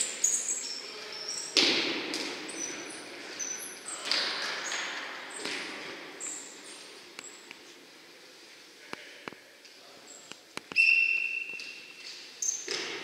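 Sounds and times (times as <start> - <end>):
sneakers squeaking on floor: 0.0 - 7.5, 10.1 - 13.0
ball thumping in hall: 1.4 - 6.4, 11.0 - 13.0.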